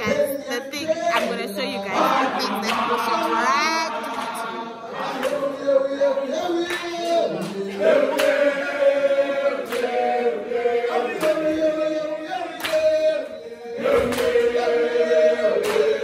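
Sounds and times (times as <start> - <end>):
group singing chant-like song: 0.0 - 16.0
sharp clap-like beat: 0.0 - 16.0.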